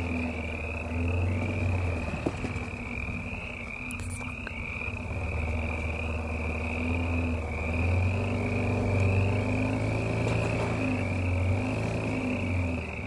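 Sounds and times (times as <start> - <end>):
frogs calling in trills: 0.0 - 13.0
truck engine running low: 0.0 - 13.0.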